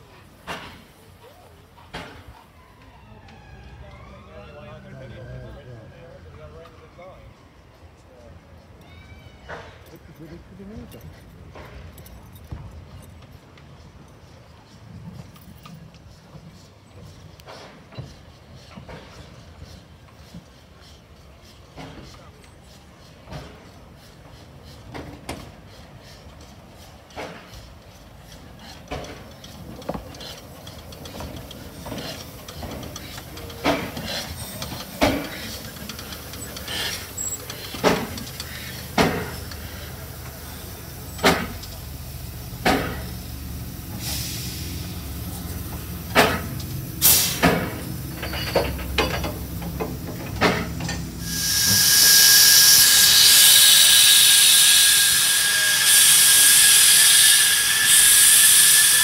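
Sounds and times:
steam engine low rumble: 13.2s - 59.0s
steam hissing: 16.6s - 59.0s
metallic clanks and knocks: 47.3s - 51.1s.

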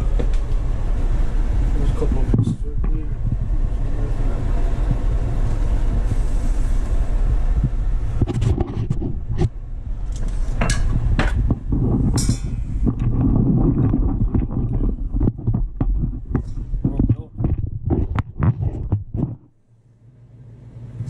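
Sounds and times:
low handling rumble: 0.0s - 21.0s
sharp clicks and knocks: 8.2s - 19.6s.

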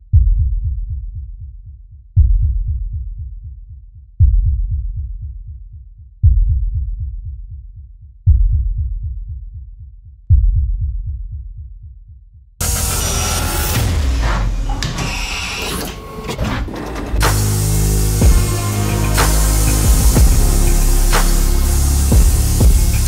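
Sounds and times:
deep bass booms: 17.2s - 23.0s.

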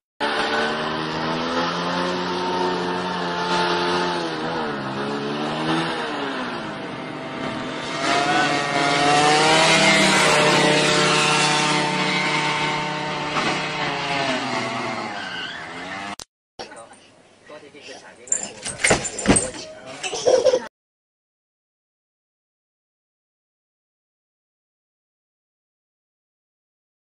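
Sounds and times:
vehicle engine revving: 0.2s - 16.2s.

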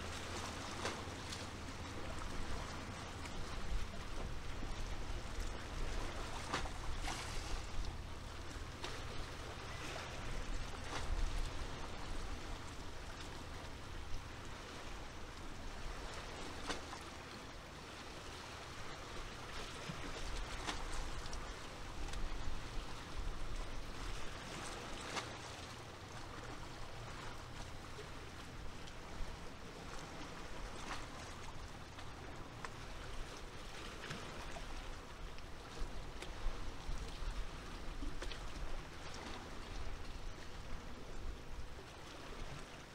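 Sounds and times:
wind rumble on microphone: 0.0s - 16.8s, 34.2s - 42.7s
small waves lapping: 0.0s - 42.9s.

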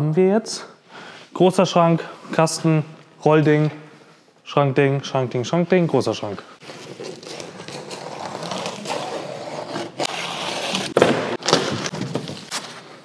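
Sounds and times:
styrofoam scraping and rubbing: 6.6s - 11.2s.

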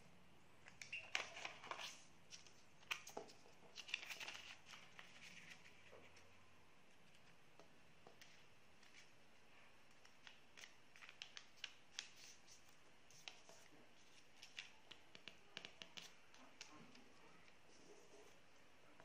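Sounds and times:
paper being folded and creased: 1.1s - 6.3s.

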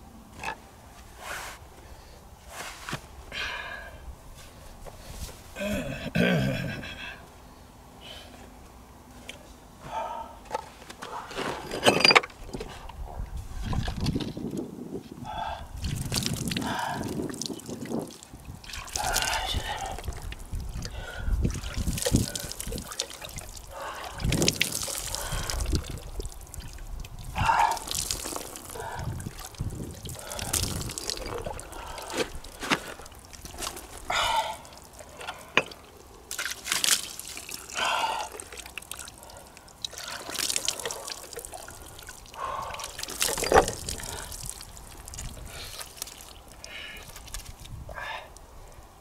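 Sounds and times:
water trickling and splashing: 11.4s - 14.6s, 15.7s - 48.0s.

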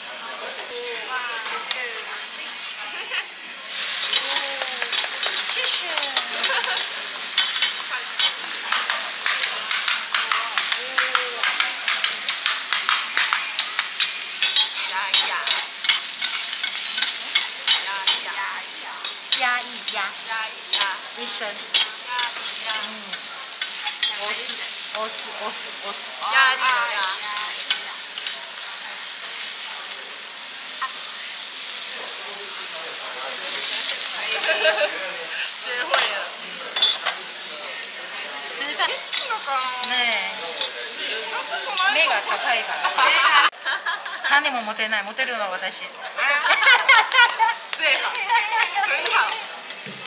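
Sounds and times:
food sizzling on griddle: 0.0s - 50.0s
metal spatulas scraping and tapping: 4.1s - 18.3s, 23.6s - 25.1s.

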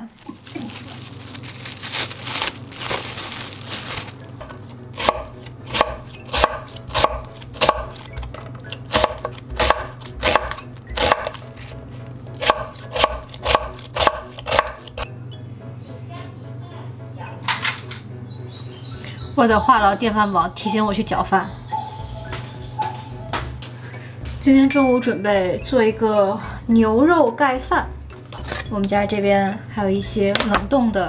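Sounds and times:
knife chopping on cutting board: 4.4s - 11.4s, 12.4s - 15.1s
low steady hum: 18.1s - 31.0s.

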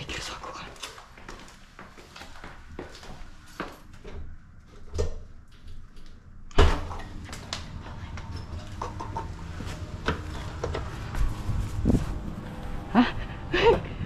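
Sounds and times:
steady low rumble: 7.2s - 14.0s.

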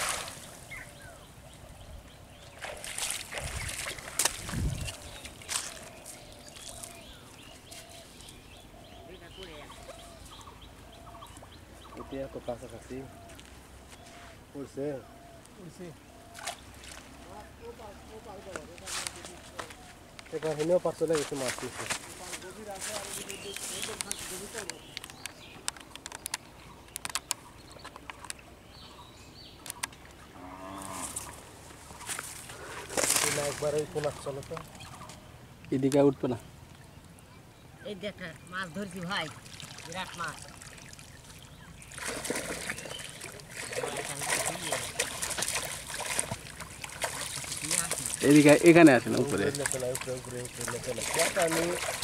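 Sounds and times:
shallow water splashing: 0.0s - 0.9s, 2.3s - 8.0s, 38.3s - 52.0s
water lapping: 0.0s - 1.3s, 2.3s - 13.3s, 36.2s - 52.0s.

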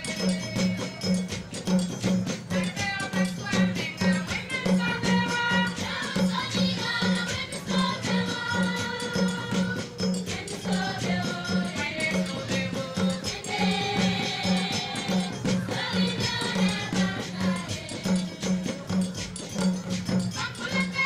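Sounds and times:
choir singing in parts: 4.8s - 18.7s.

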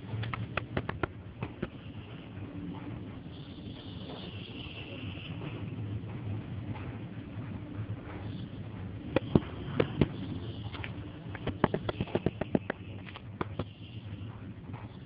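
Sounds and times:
sharp irregular clicks: 0.0s - 5.6s, 8.9s - 14.1s
low rumble of street traffic: 0.0s - 15.0s.

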